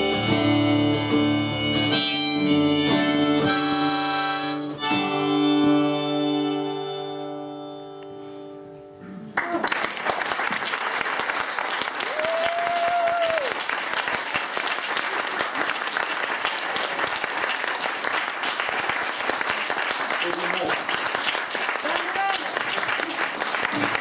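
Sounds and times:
harmonica over acoustic guitar: 0:00.0 - 0:09.2
audience applause: 0:09.3 - 0:24.0
crowd whoop: 0:12.0 - 0:13.7.

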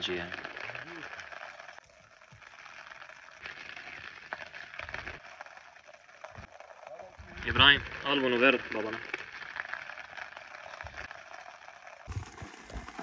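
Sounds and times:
kebab sizzling on a grill: 0:00.0 - 0:05.2, 0:06.4 - 0:11.1.

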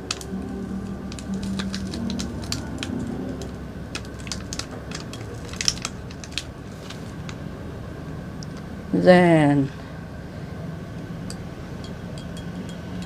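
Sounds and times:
paper sachet crinkling: 0:01.1 - 0:07.4
small clicks and crackles: 0:04.0 - 0:07.4.

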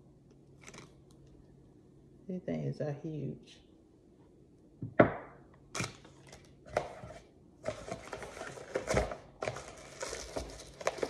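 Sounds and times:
packing material crinkling: 0:00.6 - 0:01.2, 0:07.6 - 0:11.0.

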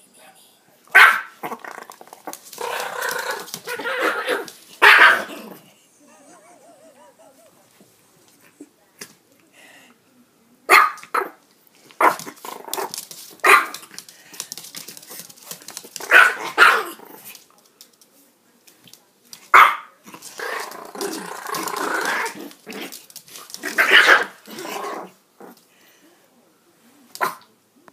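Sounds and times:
dogs play-barking: 0:00.9 - 0:05.7, 0:15.9 - 0:17.3, 0:19.5 - 0:25.6
dog growling: 0:01.4 - 0:04.5, 0:20.1 - 0:23.0, 0:23.6 - 0:25.6.

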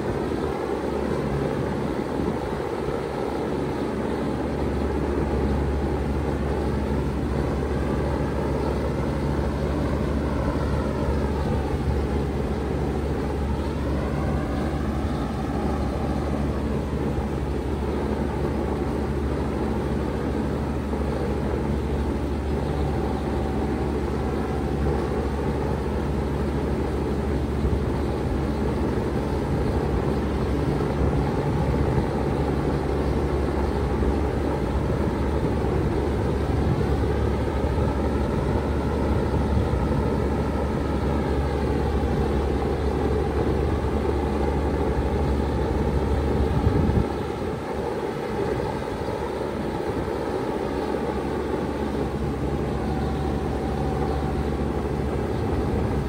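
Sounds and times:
heat pump hum: 0:00.0 - 0:56.0
rushing air noise: 0:00.0 - 0:56.0.

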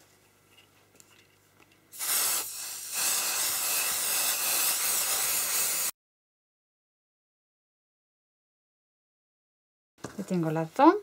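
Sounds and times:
aerosol spray can hissing: 0:01.9 - 0:06.0.

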